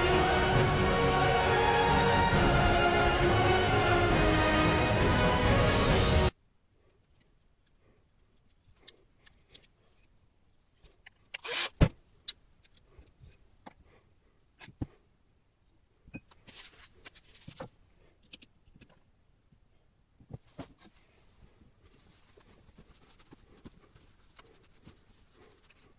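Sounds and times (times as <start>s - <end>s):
clicks and knocks of parts handled: 6.9s - 13.8s, 15.7s - 19.1s
rustling: 20.2s - 25.9s
rubbing and scraping: 20.3s - 25.9s.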